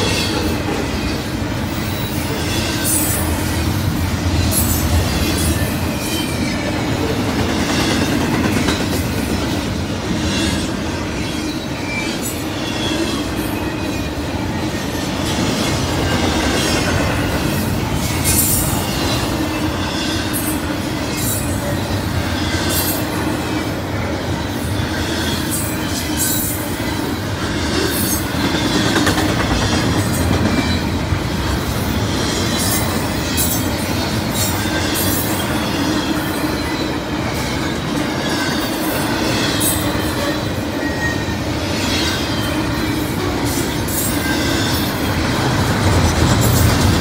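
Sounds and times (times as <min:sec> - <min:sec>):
train wheels rumbling on rail: 0:00.0 - 0:47.0
high-pitched wheel squeals: 0:32.3 - 0:45.5.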